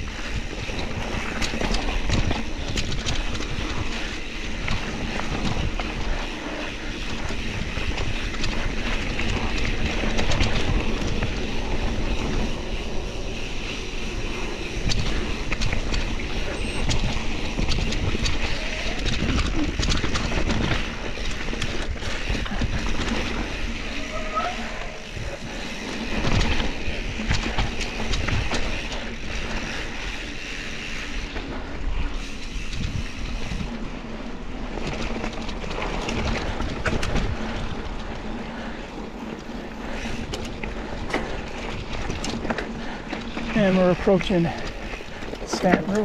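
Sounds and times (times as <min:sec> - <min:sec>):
bike rattling over bumps: 0:00.0 - 0:46.0
wind buffeting microphone: 0:00.0 - 0:46.0
tyres crunching on dirt: 0:39.2 - 0:46.0.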